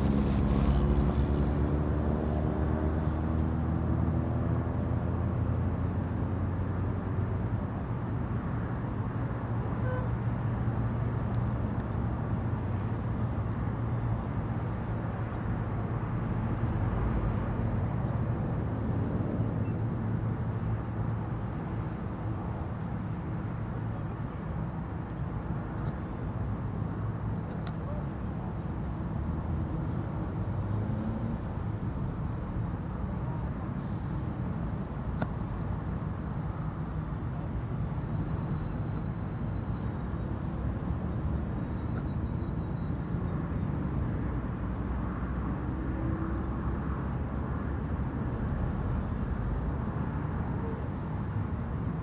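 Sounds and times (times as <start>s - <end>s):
vehicle engine humming: 0.0s - 6.9s
outdoor noise: 0.0s - 52.0s.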